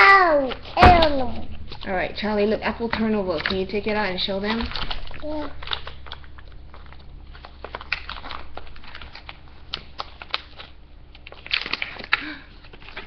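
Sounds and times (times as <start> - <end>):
food pouch crinkling: 3.2 - 13.0.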